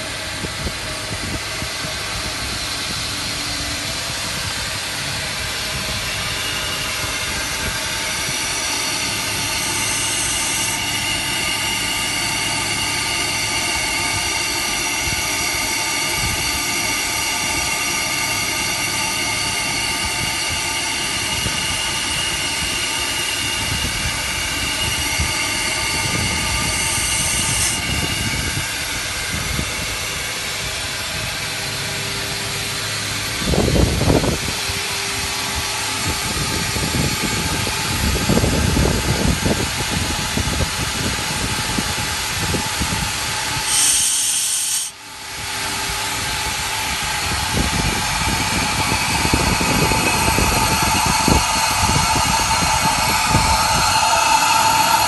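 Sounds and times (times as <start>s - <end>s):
steady whining tones: 0.0s - 55.0s
steam boiler plant rushing: 0.0s - 55.0s
sharp high steam hiss: 4.4s - 31.4s, 41.8s - 55.0s.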